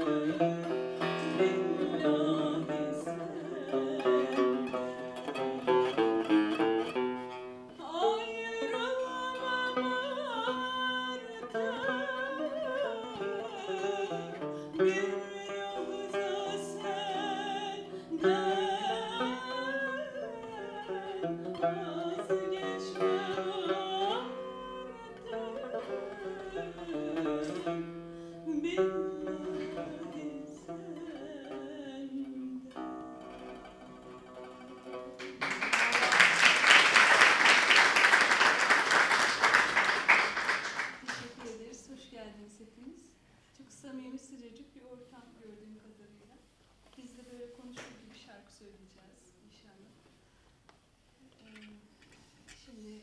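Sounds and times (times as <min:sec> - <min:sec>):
woman singing: 0:00.0 - 0:05.5, 0:07.7 - 0:33.4
plucked lute: 0:00.0 - 0:42.1, 0:51.3 - 0:53.0
audience applause: 0:35.2 - 0:41.2.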